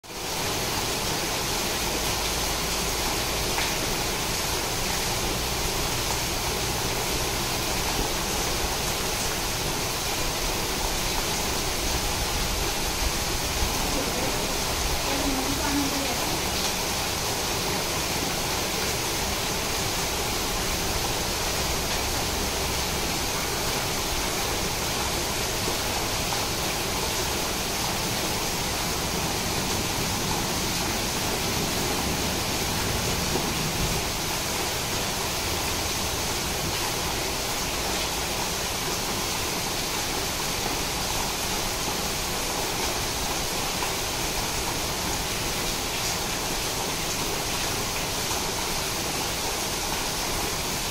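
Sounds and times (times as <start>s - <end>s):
heavy rain on water and leaves: 0.0s - 50.9s.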